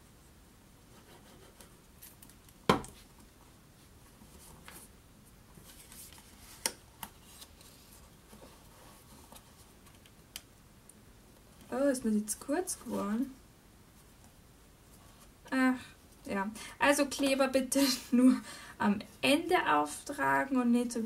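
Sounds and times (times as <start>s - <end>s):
paper rubbing and rustling: 5.5s - 9.8s.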